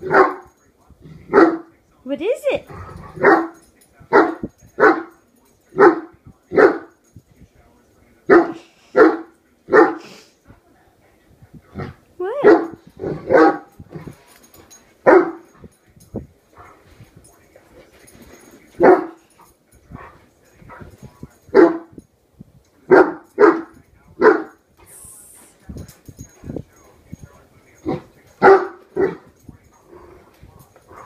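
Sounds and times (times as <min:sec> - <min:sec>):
dog barking loudly: 0:00.0 - 0:00.5, 0:01.3 - 0:01.7, 0:03.1 - 0:05.2, 0:05.8 - 0:06.9, 0:08.3 - 0:10.0, 0:12.4 - 0:13.8, 0:15.0 - 0:15.5, 0:18.8 - 0:19.2, 0:21.5 - 0:22.0, 0:22.9 - 0:24.6, 0:27.9 - 0:29.2.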